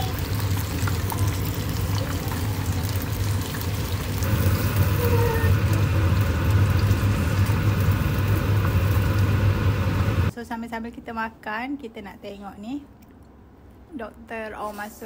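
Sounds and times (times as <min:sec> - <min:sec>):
oil sizzling and bubbling: 0:00.0 - 0:10.3
low hum: 0:04.2 - 0:10.3.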